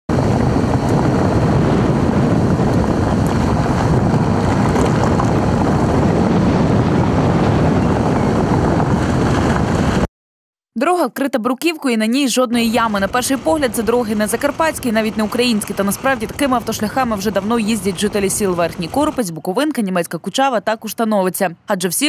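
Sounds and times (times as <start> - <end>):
wind on microphone: 0.1 - 10.1, 12.6 - 19.2
tyres rolling on road: 0.2 - 6.2, 12.6 - 19.3.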